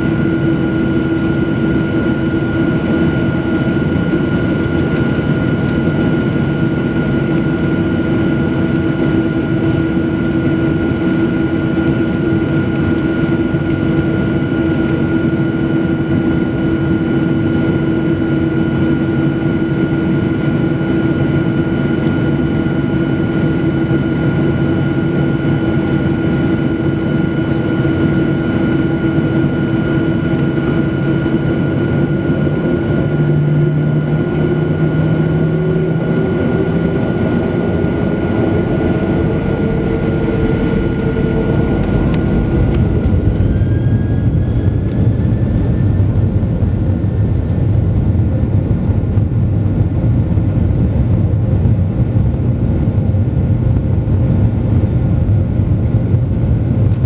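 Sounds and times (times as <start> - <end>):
jet engine whine and rumble: 0.0 - 57.0.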